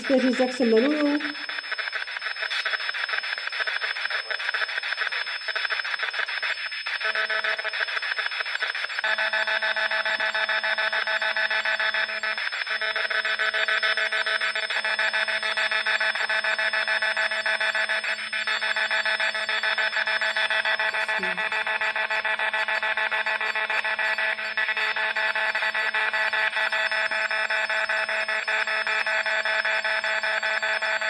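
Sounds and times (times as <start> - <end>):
choppy radio static: 0.0 - 14.5, 17.2 - 27.2.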